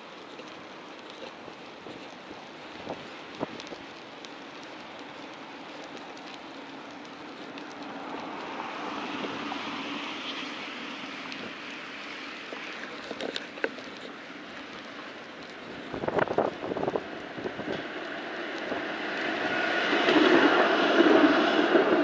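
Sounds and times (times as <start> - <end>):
bicycle tyre noise: 0.0 - 22.0
traffic noise: 0.0 - 22.0.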